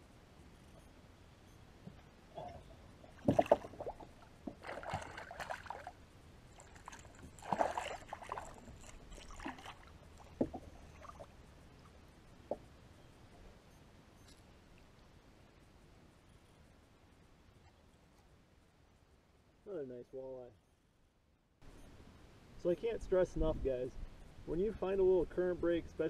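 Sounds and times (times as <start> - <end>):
fish splashing at water surface: 3.2 - 11.3.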